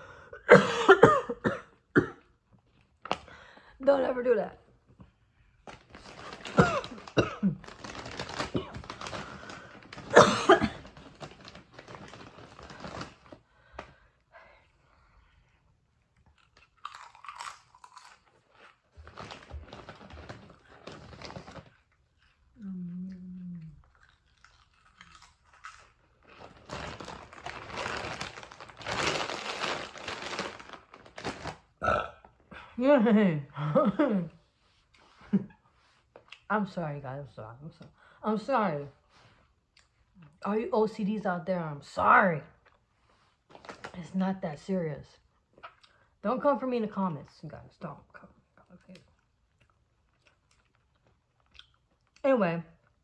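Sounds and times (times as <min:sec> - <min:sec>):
plastic bag crinkling: 0:05.6 - 0:13.4, 0:16.6 - 0:22.0, 0:24.2 - 0:31.8, 0:43.5 - 0:44.0.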